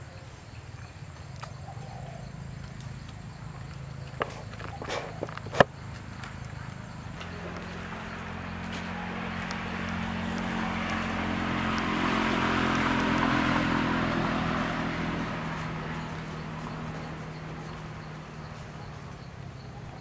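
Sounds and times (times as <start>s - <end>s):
vehicle driving past: 5.8s - 20.0s.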